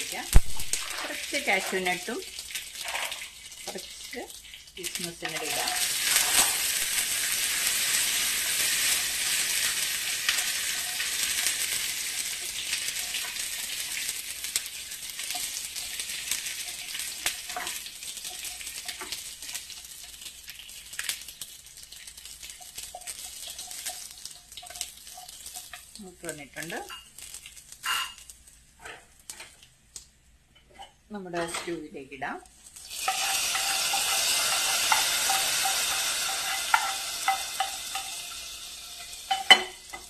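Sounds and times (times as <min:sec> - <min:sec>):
wooden spatula clicking and scraping: 0:00.0 - 0:06.6, 0:22.0 - 0:29.7, 0:32.8 - 0:38.1
food sizzling in hot oil: 0:00.0 - 0:40.0.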